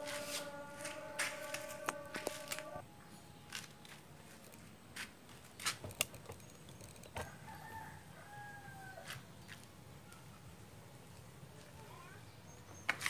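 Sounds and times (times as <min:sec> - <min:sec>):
drawn-out animal call: 0:00.0 - 0:02.8.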